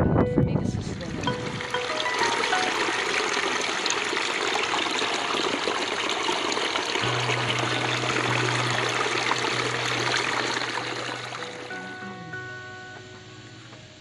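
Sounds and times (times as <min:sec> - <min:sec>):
stream water over rocks: 0:00.9 - 0:14.0
steady low hum: 0:07.0 - 0:14.0.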